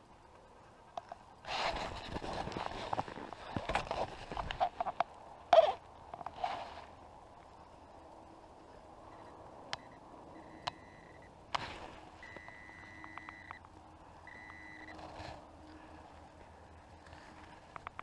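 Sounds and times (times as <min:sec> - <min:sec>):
metal detector beeping: 0:09.1 - 0:11.3, 0:12.2 - 0:15.1
sharp clicks: 0:12.3 - 0:13.8.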